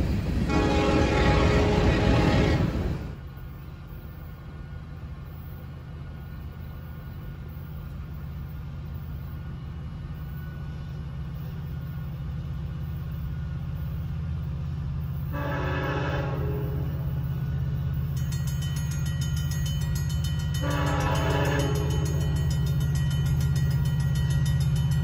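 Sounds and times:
approaching train rumble: 0.0 - 25.0
train horn blast: 0.5 - 3.0, 15.3 - 17.2, 20.6 - 22.4.

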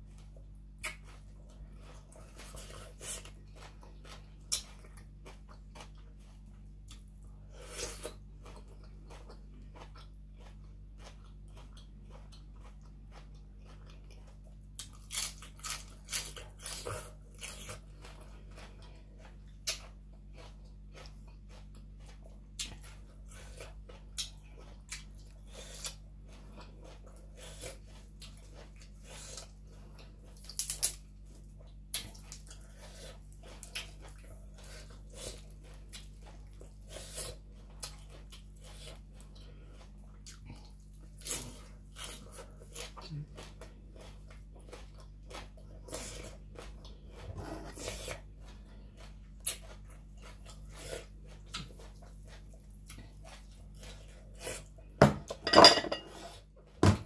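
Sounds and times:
person chewing crunchy food: 0.0 - 56.6.

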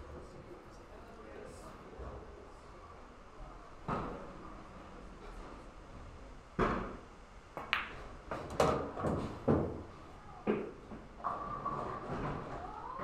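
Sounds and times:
pool balls clacking: 6.6 - 13.0
pool cue striking ball: 7.6 - 9.9.

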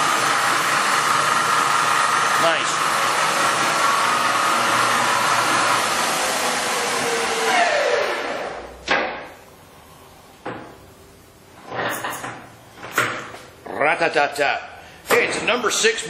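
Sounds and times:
lathe whining: 0.0 - 8.6.

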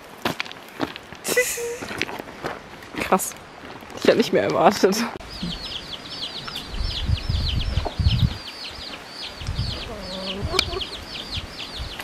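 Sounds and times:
low rumbles: 5.2 - 8.5
hen clucking: 5.2 - 11.4
chicks peeping: 5.2 - 12.0.

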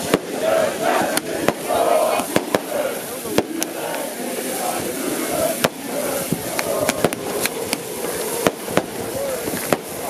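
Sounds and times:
crowd celebrating: 0.0 - 10.0
firecrackers banging: 0.0 - 10.0.

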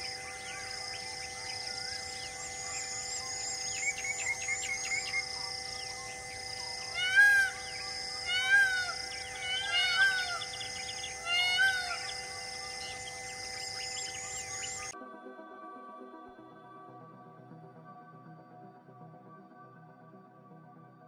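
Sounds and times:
animal calls: 0.0 - 15.0
high chirping and held tones: 0.0 - 15.0.

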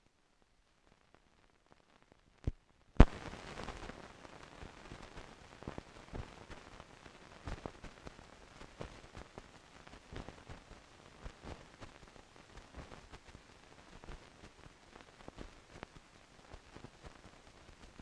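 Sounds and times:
film soundtrack hiss: 0.0 - 18.0
film clicks and pops: 2.4 - 3.9.

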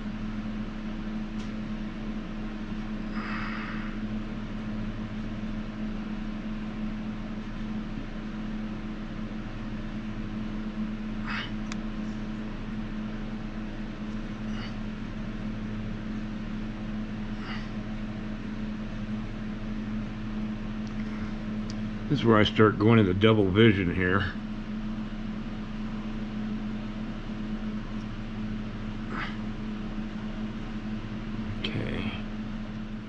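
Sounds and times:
low fan-like hum: 0.0 - 33.0.

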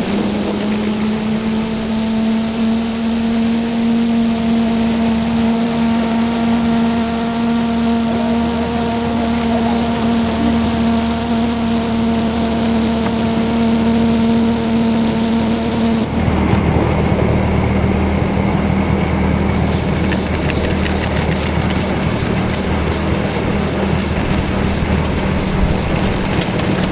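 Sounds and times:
model steam locomotive hissing: 0.0 - 16.4, 19.3 - 26.9
locomotive rumbling on track: 16.1 - 26.9
quick clicks: 19.6 - 26.9.

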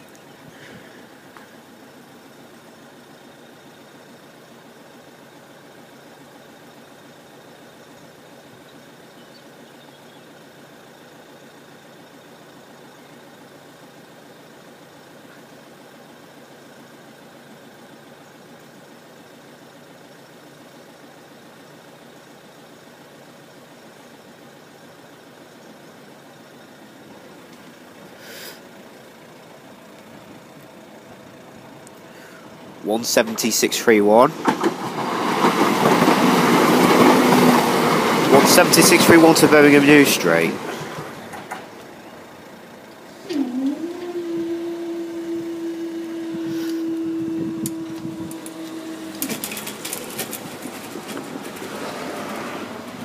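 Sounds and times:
vehicle engines idling: 0.0 - 53.0
short sharp hiss: 28.1 - 28.7, 46.4 - 47.1
barrier mechanism humming: 38.4 - 51.8.

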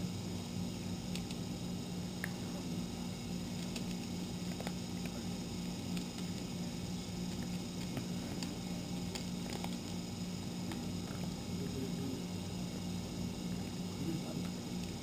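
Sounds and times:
steady low hum: 0.0 - 15.0
cat crunching dry food: 3.5 - 11.2.

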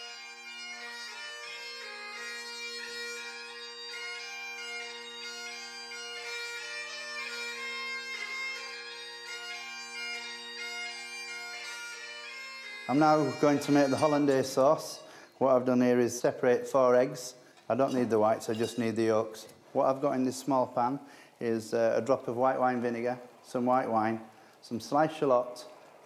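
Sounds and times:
bagpipe melody with drones: 0.0 - 17.4.

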